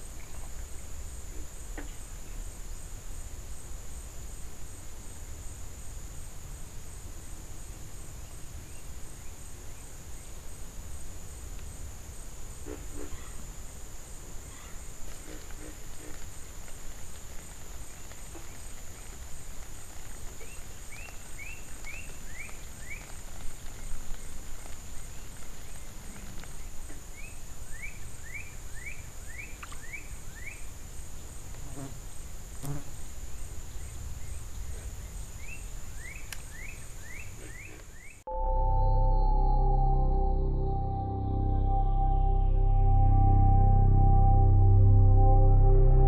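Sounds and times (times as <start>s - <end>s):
low even hiss: 0.0s - 46.0s
ambient music: 38.3s - 46.0s
high-pitched insect drone: 38.3s - 46.0s.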